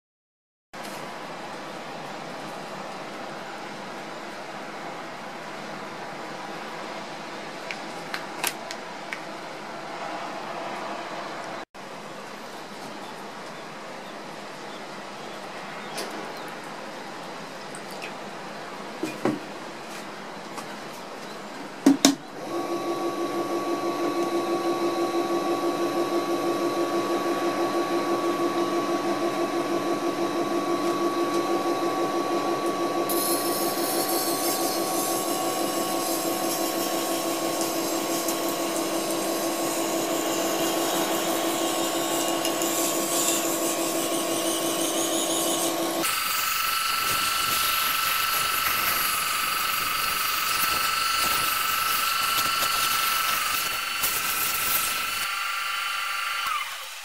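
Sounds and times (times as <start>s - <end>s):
sharpening machine motor humming: 22.4s - 57.0s.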